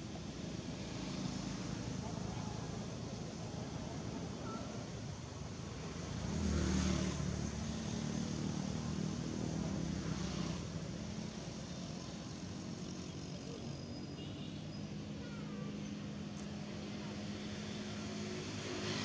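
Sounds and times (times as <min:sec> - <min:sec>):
vehicle engine passing by: 0:05.9 - 0:12.0, 0:16.8 - 0:19.0.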